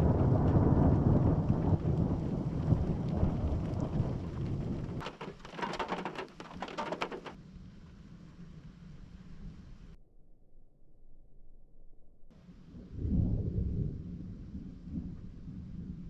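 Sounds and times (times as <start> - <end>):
raindrops tapping on a car: 0.0 - 7.4
thunder rumbling: 0.0 - 9.9, 12.6 - 16.0.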